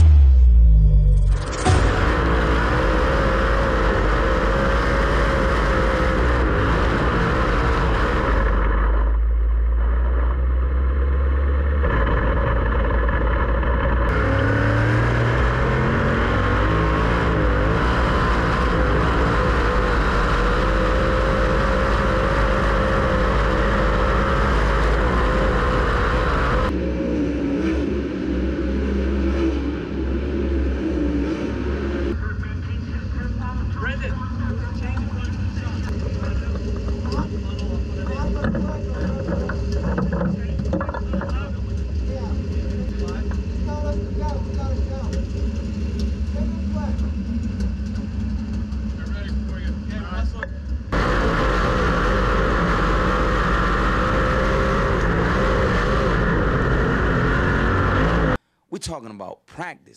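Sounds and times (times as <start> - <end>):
race car engines running hard: 1.6 - 58.4.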